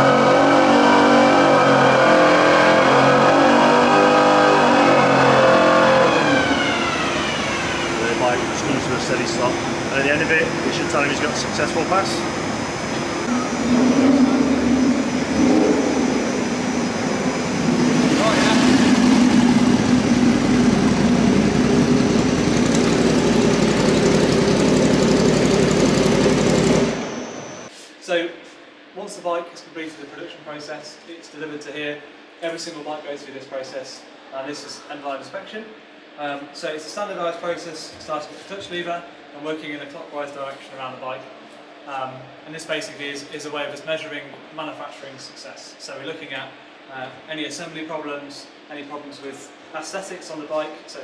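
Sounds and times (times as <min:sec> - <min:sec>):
motorcycle engine running at speed: 0:12.1 - 0:27.7.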